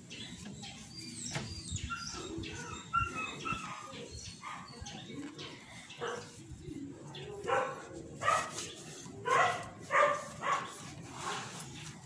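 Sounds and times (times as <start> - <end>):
dog whimpering and yipping: 1.4 - 4.6.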